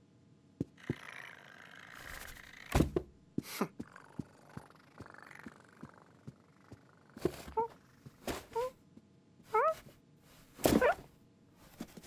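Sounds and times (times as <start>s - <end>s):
falling cat vocal sound: 3.8s - 8.7s.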